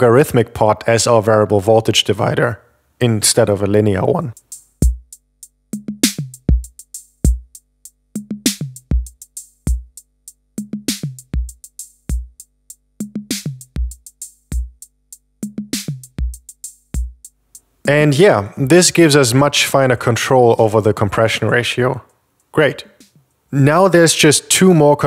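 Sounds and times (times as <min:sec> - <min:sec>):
drum machine beat: 0:04.3 - 0:18.2, 0:22.4 - 0:23.3.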